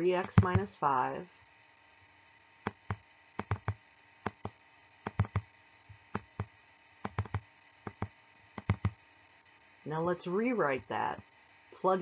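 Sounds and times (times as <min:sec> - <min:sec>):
faint background hiss: 0:00.0 - 0:12.0
sharp computer input clicks: 0:00.2 - 0:00.7, 0:02.6 - 0:09.0.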